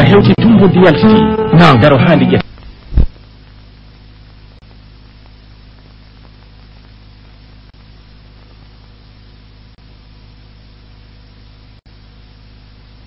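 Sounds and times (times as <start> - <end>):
electrical hum with hiss: 0.0 - 13.0.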